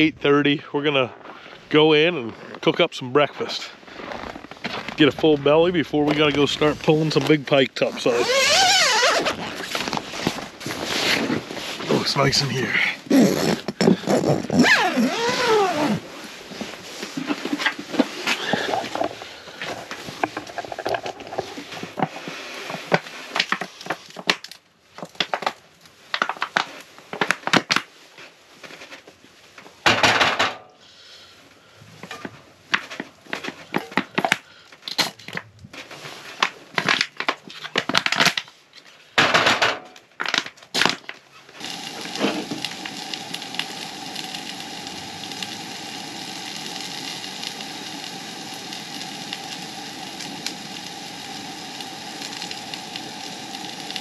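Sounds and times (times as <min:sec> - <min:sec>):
crinkling rustling handling noises: 0:00.8 - 0:29.8, 0:31.6 - 0:39.2
food sizzling in a skillet: 0:41.6 - 0:54.0.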